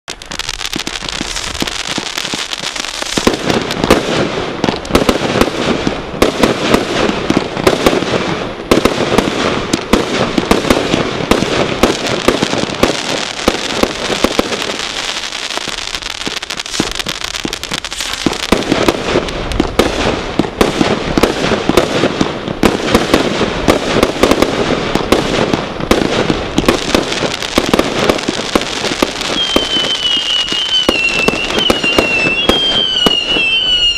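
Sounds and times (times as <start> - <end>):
fireworks rapid shots: 0.0 - 33.9.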